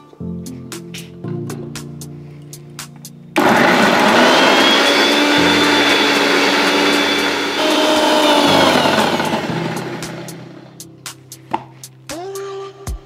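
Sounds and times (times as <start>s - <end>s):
mixer grinder running: 3.4s - 10.8s.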